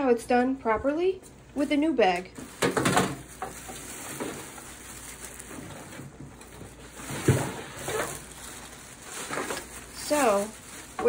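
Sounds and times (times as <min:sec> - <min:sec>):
plastic bag rustling: 0:02.4 - 0:11.0.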